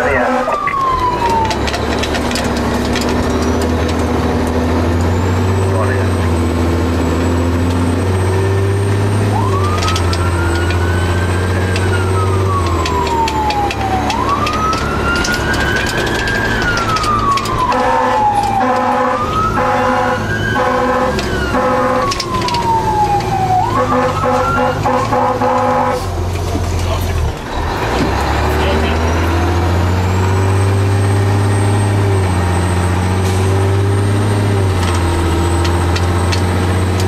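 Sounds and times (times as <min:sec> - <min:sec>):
short horn blasts: 0:00.0 - 0:00.6, 0:17.7 - 0:22.1, 0:23.7 - 0:26.1
fire engine siren wailing: 0:00.0 - 0:37.0
truck engine drone: 0:00.0 - 0:37.0.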